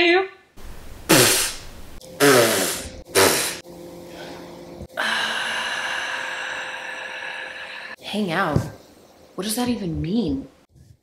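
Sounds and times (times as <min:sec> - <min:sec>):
woman sighing: 0:04.9 - 0:08.0.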